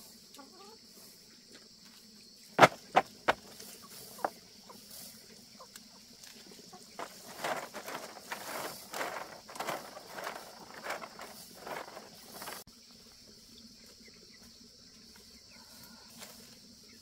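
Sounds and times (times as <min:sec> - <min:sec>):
rustling and scraping: 0:02.6 - 0:05.2, 0:06.2 - 0:12.7.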